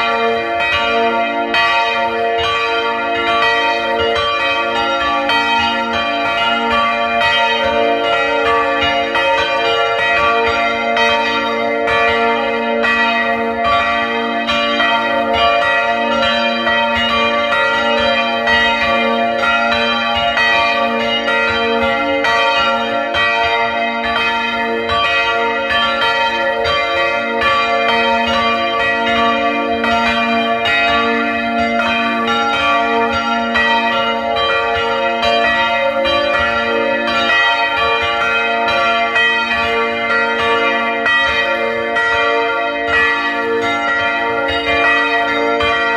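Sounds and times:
church bells ringing: 0.0s - 45.9s.

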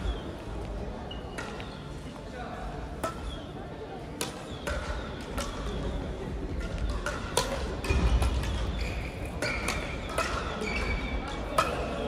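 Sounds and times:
shoes squeaking on court floor: 8.6s - 11.5s.

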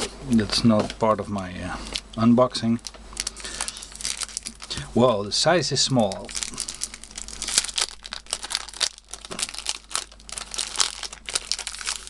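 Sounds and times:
plastic wrapping crinkling: 2.7s - 5.2s, 5.9s - 12.0s.

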